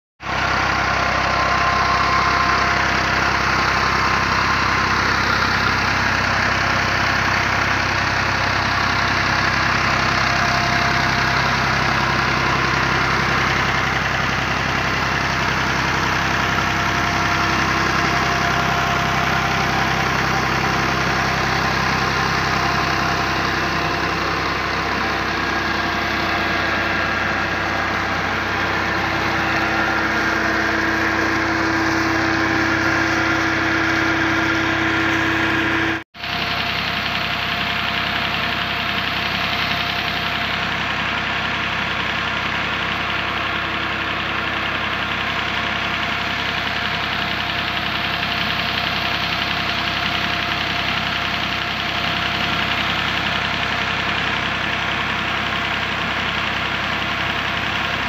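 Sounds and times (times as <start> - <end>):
tractor diesel engine running: 0.2 - 58.0.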